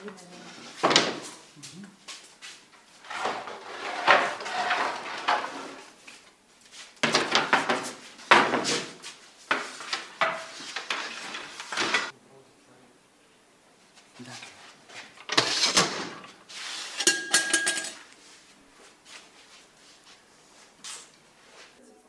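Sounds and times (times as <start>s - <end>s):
wooden peel scraping oven floor: 3.0s - 6.0s, 8.6s - 12.1s, 15.3s - 17.0s.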